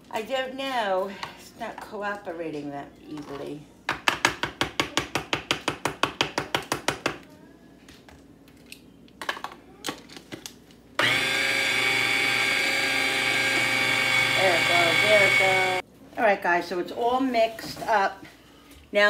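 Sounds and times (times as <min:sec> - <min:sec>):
kitchen appliance motor running: 0:11.0 - 0:15.8.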